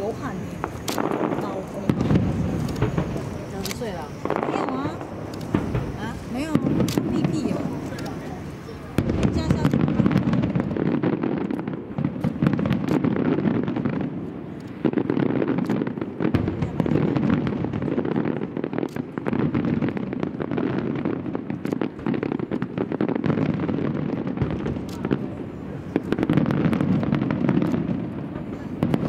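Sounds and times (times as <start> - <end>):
firework shells bursting: 0.0 - 29.0
sharp cracks and pops: 0.6 - 8.3, 9.0 - 25.2, 26.0 - 28.0
low rumble of bangs: 0.6 - 11.1.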